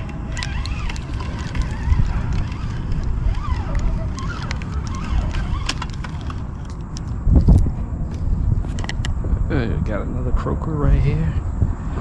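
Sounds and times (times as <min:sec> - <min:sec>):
fishing reel clicking: 0:00.0 - 0:07.6
wind buffeting microphone: 0:00.0 - 0:12.0.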